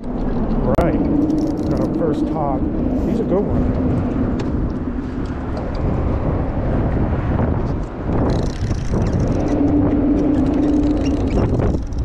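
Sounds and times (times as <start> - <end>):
low rumble of road traffic: 0.0 - 12.0
steady hum: 0.0 - 12.0
wind on microphone: 0.0 - 12.0.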